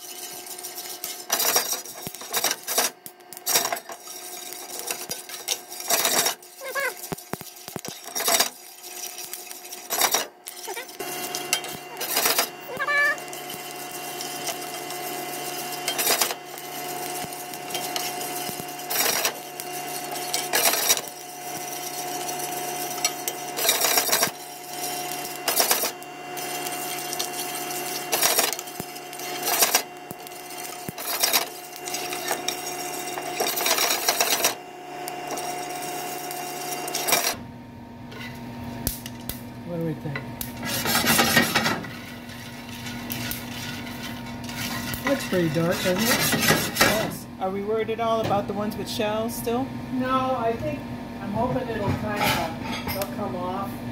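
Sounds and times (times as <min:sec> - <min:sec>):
coffee beans rattling in a pan: 0:00.0 - 0:37.4, 0:40.4 - 0:47.2
kitchen fan humming: 0:00.0 - 0:53.9.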